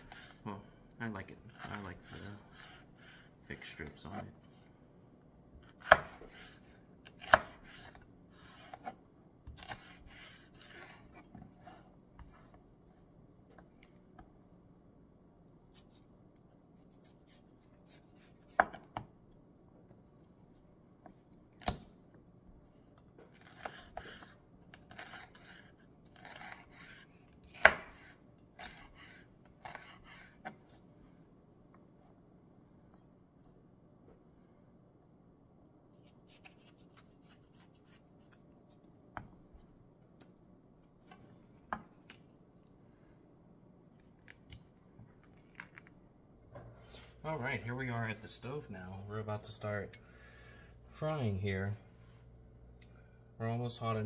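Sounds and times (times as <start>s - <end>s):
knife slicing pepper: 5.6s - 11.3s, 23.3s - 30.5s, 36.0s - 38.4s.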